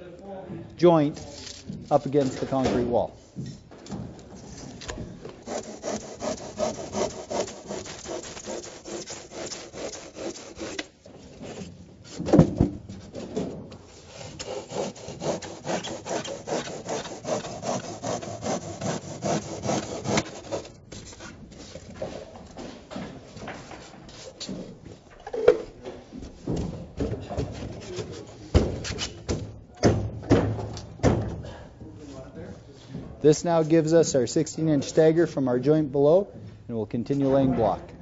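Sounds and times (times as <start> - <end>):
handsaw cutting polystyrene: 5.4 - 11.0, 13.9 - 20.8
thump: 12.2 - 12.8, 28.6 - 31.6.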